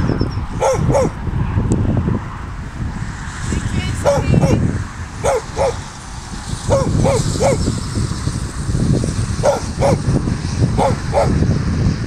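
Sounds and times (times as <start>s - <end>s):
dog barking: 0.6s - 1.2s, 4.0s - 4.6s, 5.2s - 5.8s, 6.7s - 7.6s, 9.4s - 10.1s, 10.8s - 11.4s.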